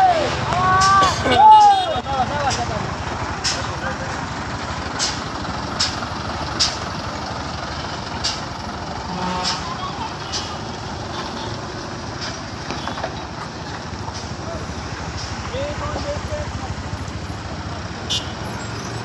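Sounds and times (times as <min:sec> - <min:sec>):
truck diesel engine passing: 0:00.0 - 0:19.0.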